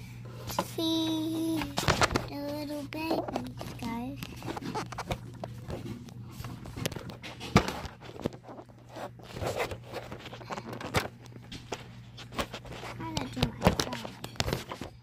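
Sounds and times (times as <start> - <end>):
low steady hum: 0.0 - 15.0
plastic toys clicking and scraping: 0.5 - 15.0.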